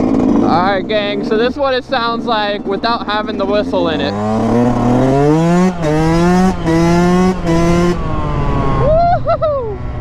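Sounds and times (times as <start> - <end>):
two-stroke motorcycle accelerating: 0.0 - 10.0.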